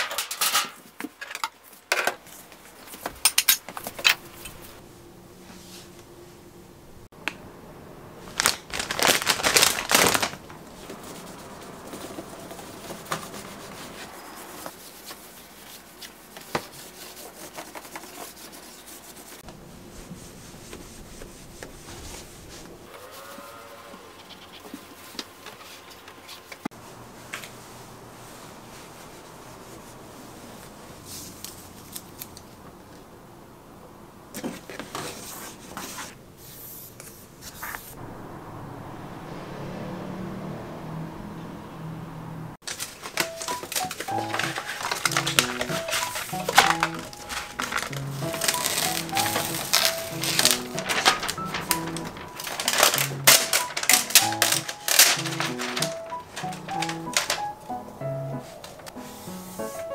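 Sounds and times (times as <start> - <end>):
plastic wrapper crinkling: 8.2 - 11.8, 42.6 - 57.8
wipe rubbing on surfaces: 10.8 - 23.4, 58.5 - 59.9.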